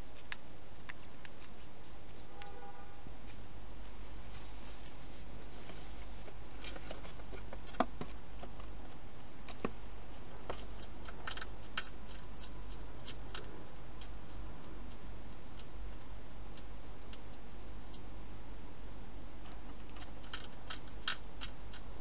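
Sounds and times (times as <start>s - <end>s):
hedgehog crunching dry food: 10.4s - 16.1s, 19.8s - 22.0s.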